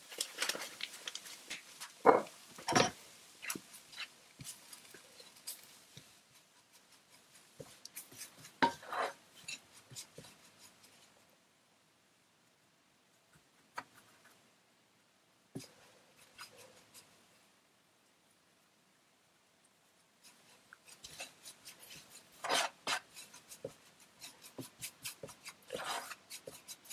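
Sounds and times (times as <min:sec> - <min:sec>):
spatula scraping a frying pan: 0:01.8 - 0:11.1, 0:20.2 - 0:26.9.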